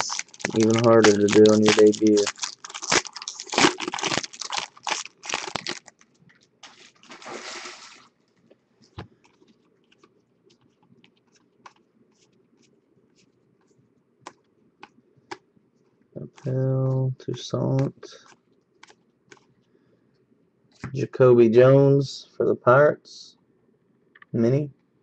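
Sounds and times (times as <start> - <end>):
foil wrapper crinkling: 0.0 - 8.1.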